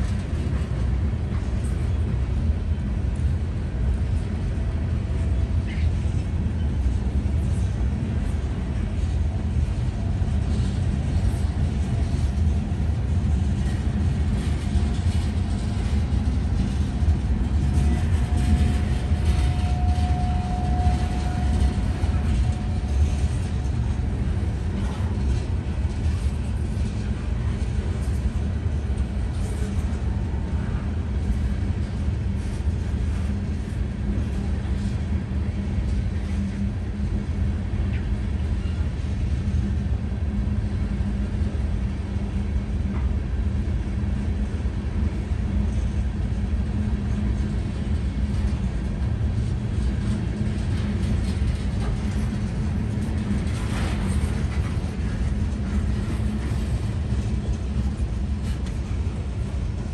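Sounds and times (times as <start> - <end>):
train wheels rumbling on rails: 0.0 - 59.9
faint steady squeal: 14.8 - 25.3.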